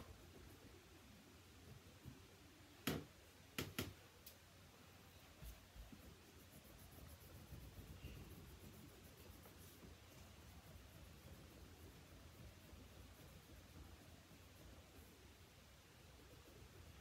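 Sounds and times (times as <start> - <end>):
crayon scribbling on pumpkin: 5.5 - 15.2.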